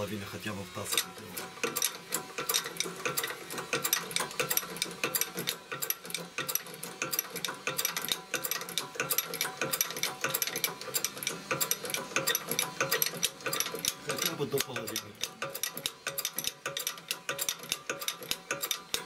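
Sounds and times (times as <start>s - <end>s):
hydraulic press clicking and clacking: 0.0s - 19.0s.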